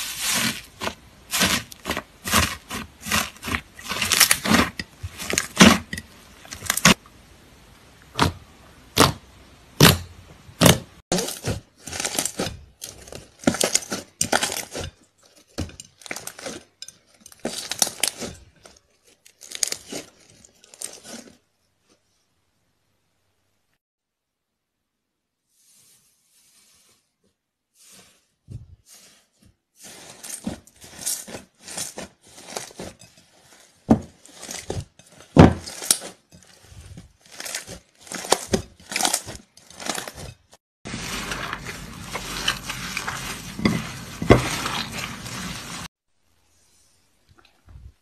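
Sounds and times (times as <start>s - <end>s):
hands squishing slime: 0.0s - 7.0s, 40.9s - 45.9s.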